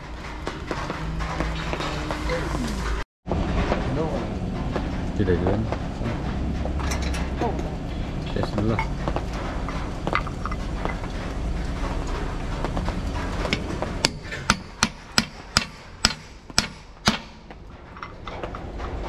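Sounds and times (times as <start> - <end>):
low rumble: 0.0 - 14.8
sharp hammer strikes: 13.5 - 17.5.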